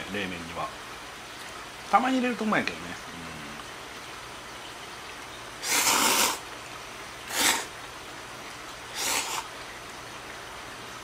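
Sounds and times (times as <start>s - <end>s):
person slurping noodles: 5.6s - 6.4s, 7.3s - 7.7s, 9.0s - 9.5s.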